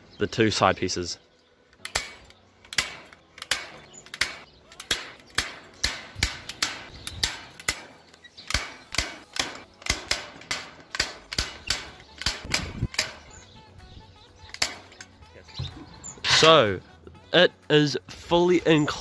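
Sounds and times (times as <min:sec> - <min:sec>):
staple gun snapping: 0:01.8 - 0:13.4, 0:14.4 - 0:15.1.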